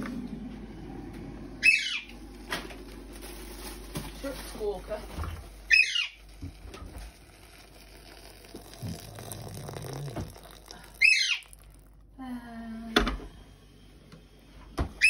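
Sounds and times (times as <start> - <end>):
parrot squawking: 1.6 - 2.1, 5.7 - 6.2, 11.0 - 11.6
tap water splashing on vegetables: 8.4 - 11.6.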